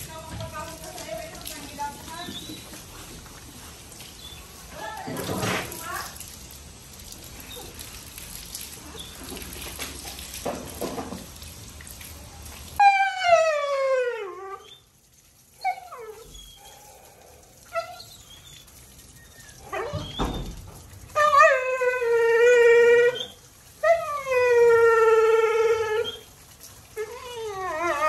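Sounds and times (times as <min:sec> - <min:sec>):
water spraying from a hose: 0:00.0 - 0:28.0
dog howling: 0:12.8 - 0:14.8, 0:21.2 - 0:26.3, 0:27.0 - 0:28.0
dog whining: 0:12.8 - 0:14.9, 0:15.6 - 0:17.0, 0:17.6 - 0:20.4, 0:21.1 - 0:26.3, 0:27.0 - 0:28.0.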